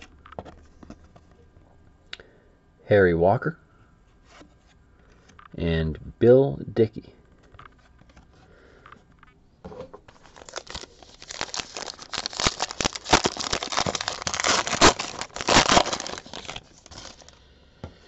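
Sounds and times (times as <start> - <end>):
card pack wrapper tearing and crinkling: 10.1 - 17.4.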